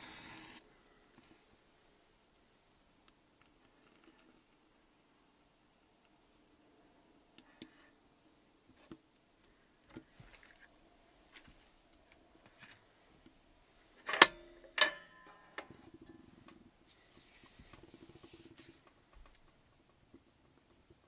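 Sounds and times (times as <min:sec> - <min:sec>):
metallic clanks ringing: 0:14.1 - 0:15.8.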